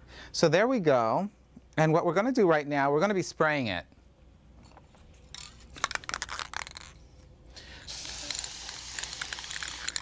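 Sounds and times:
spray can rattling: 0:05.3 - 0:07.0, 0:07.9 - 0:10.0
aerosol spray hissing: 0:07.9 - 0:10.0.

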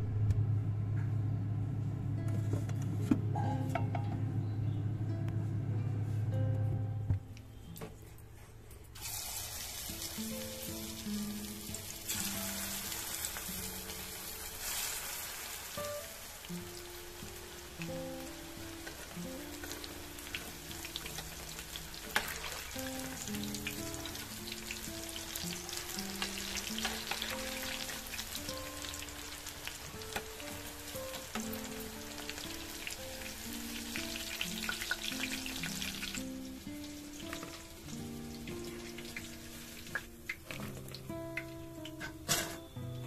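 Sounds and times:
light melodic background music: 0:01.8 - 0:15.2, 0:15.8 - 0:43.0
oil sizzling and crackling: 0:09.0 - 0:42.7.

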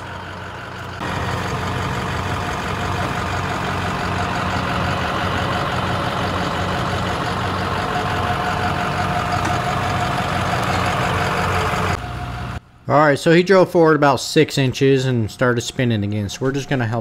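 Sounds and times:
diesel truck engine running: 0:00.0 - 0:12.7.

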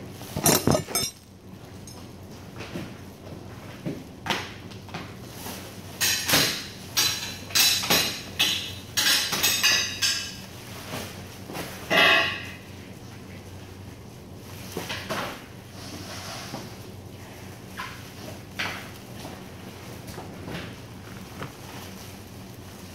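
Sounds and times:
plastic sack rustling: 0:17.6 - 0:22.9
plastic sack scrape: 0:19.8 - 0:22.9.

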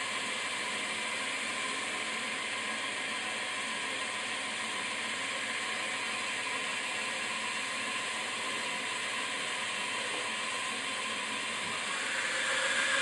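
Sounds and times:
machine whirring hiss: 0:11.6 - 0:13.0.

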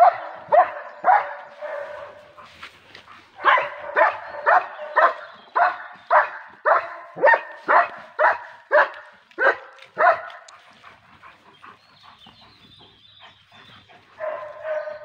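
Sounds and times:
dog barking: 0:00.0 - 0:02.4, 0:03.4 - 0:10.5, 0:14.2 - 0:15.0.

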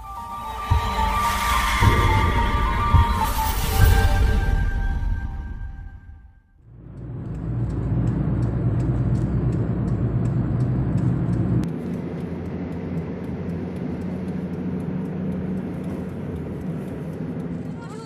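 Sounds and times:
vehicle engine and road rumble: 0:06.5 - 0:18.0
faint ticking: 0:06.8 - 0:18.0.

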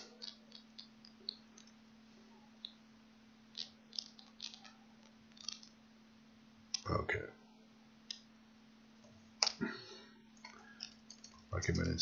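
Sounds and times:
low steady hum: 0:00.0 - 0:12.0
keyboard and mouse clicks: 0:03.6 - 0:04.8.

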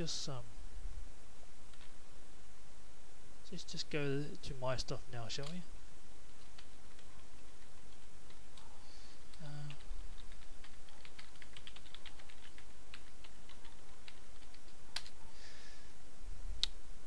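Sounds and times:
keyboard typing clicks: 0:09.3 - 0:15.2.

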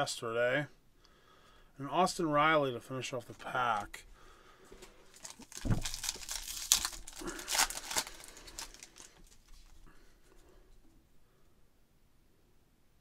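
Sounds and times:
foil wrapper crinkling: 0:05.0 - 0:09.9.

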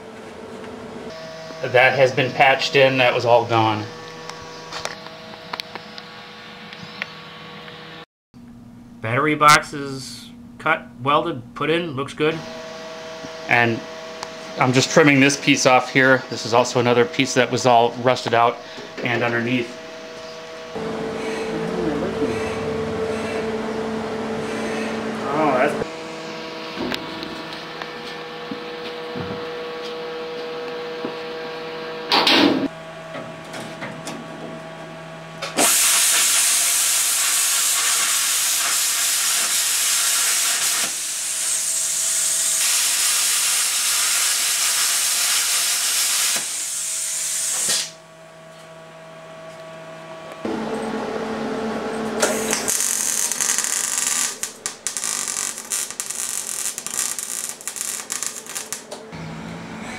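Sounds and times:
arc welding hiss: 0:35.6 - 0:48.0, 0:52.3 - 0:58.9.

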